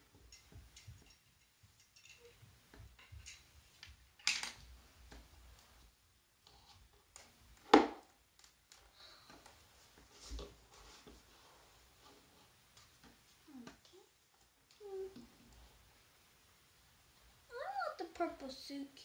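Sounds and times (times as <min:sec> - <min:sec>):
plastic toys clicking and tapping: 0:00.2 - 0:04.6
doll falling onto table: 0:07.7 - 0:08.0.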